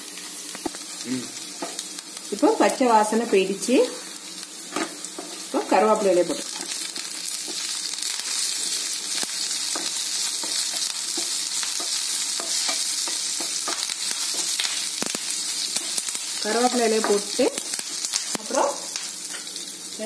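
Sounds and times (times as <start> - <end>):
food sizzling in hot oil: 0.0 - 20.0
wooden spatula scraping and tapping: 9.7 - 14.6, 16.7 - 17.3.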